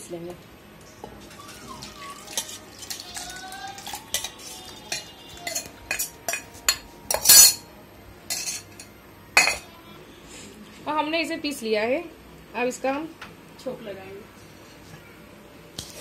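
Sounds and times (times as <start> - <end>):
spoon clinking on steel jar: 3.9 - 7.6, 8.3 - 9.6.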